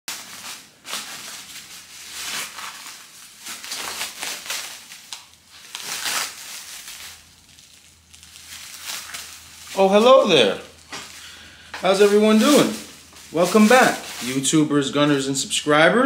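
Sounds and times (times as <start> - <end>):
plastic wrap crinkling: 0.1 - 15.5.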